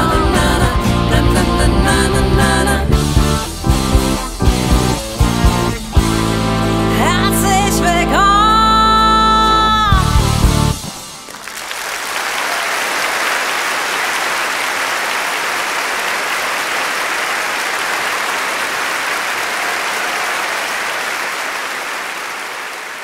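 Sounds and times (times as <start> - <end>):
large audience applauding: 11.0 - 23.0.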